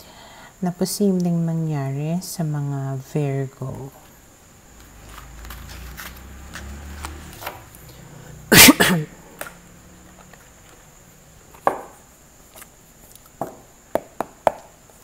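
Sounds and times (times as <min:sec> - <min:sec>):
cards clattering: 0:04.9 - 0:07.6
cards tapping on table: 0:11.6 - 0:12.0.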